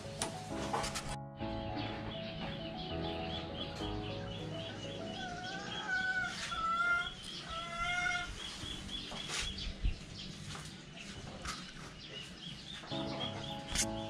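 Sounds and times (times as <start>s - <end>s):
high chirping: 1.4s - 10.3s, 12.6s - 14.0s
chicken calling: 2.6s - 8.9s.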